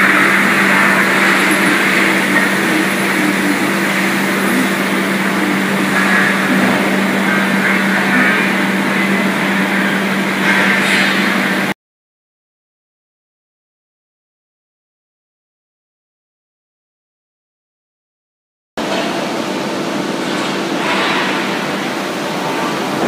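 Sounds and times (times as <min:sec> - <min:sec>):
constant low hum: 0:00.0 - 0:11.7
loud machinery noise: 0:00.0 - 0:11.8, 0:18.8 - 0:23.0.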